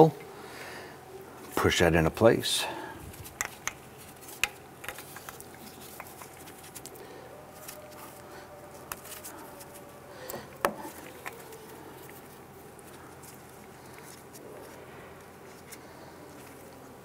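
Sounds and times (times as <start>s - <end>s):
gloved hands rustling: 3.0s - 17.0s.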